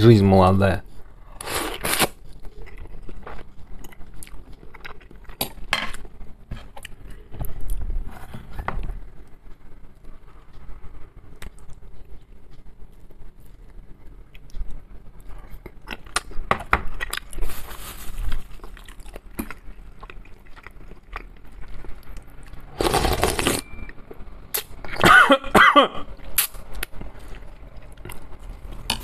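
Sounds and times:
chewing: 1.7 - 6.1, 18.3 - 23.0, 26.4 - 29.0
throaty coughs: 25.0 - 26.1.

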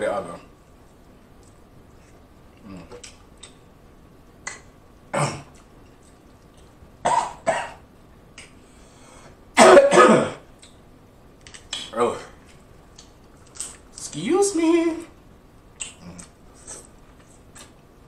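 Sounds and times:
man coughing: 9.6 - 10.4.

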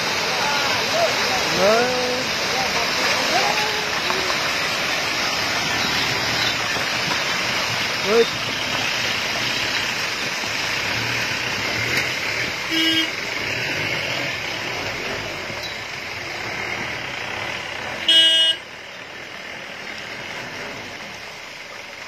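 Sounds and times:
vehicle horn toots: 12.7 - 13.2, 18.0 - 18.7.

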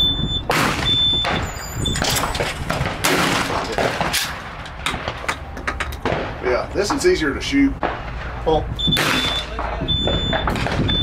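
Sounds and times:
steady low rumble: 0.0 - 11.0
shotgun shots: 0.5 - 5.2, 7.8 - 10.9.

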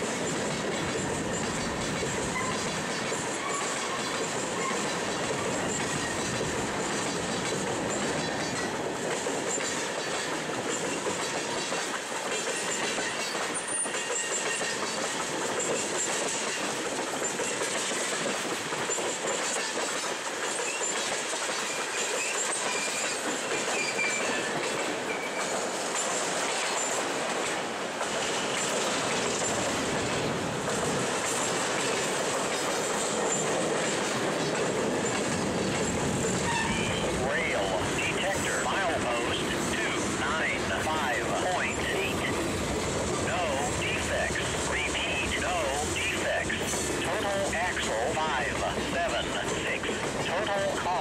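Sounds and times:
steel wheels running on rails: 0.0 - 51.0
faint high wheel squeals: 12.5 - 15.8, 21.7 - 25.6, 35.0 - 37.1.

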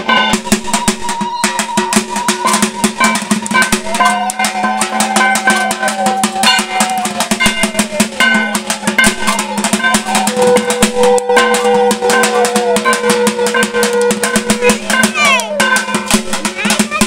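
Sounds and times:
fast dense drumming: 0.0 - 17.0
wavering melody: 0.0 - 17.0.

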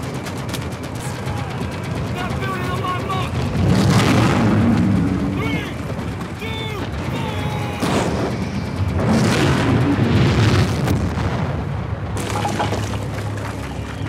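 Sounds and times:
low film score drone: 0.0 - 14.0
booming explosions: 3.0 - 13.1.

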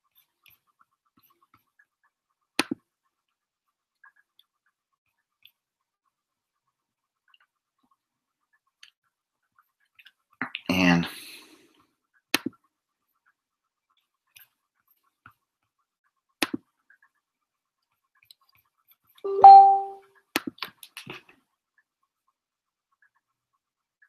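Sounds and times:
short steady beep: 19.3 - 20.0.

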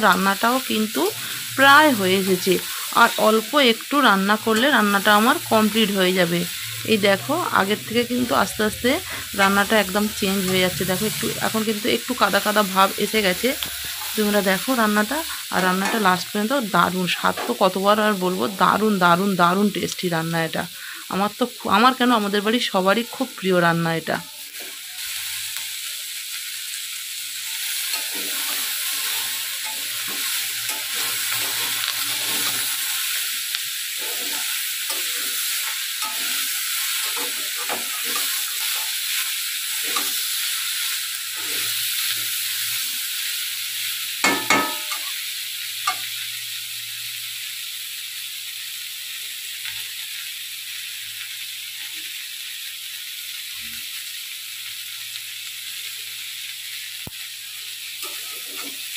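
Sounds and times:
vegetables sizzling in oil: 0.0 - 58.9
metal spatula scraping pan: 27.5 - 33.1, 33.9 - 39.0, 39.7 - 40.3, 41.3 - 41.8, 58.0 - 58.9.

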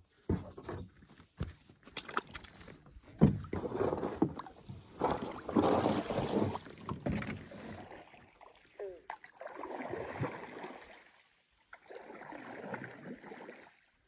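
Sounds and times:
water sloshing and swishing: 1.0 - 14.0.

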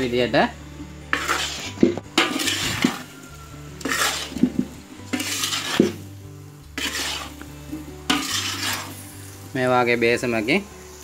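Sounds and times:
metal spoon scraping a wok: 1.0 - 9.4.

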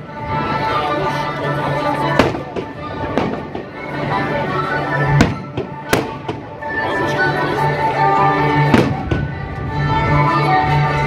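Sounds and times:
music: 0.0 - 11.0
fireworks bangs: 2.2 - 3.8, 5.2 - 6.6, 8.7 - 9.3.

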